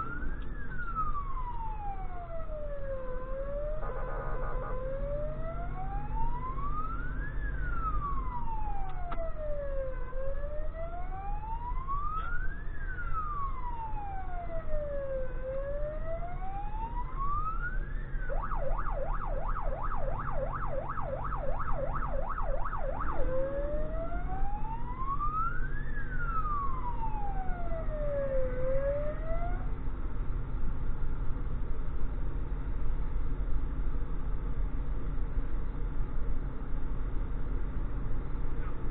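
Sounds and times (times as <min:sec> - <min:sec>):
electronic siren wailing: 0:00.0 - 0:29.7
truck engine rumbling: 0:00.0 - 0:38.9.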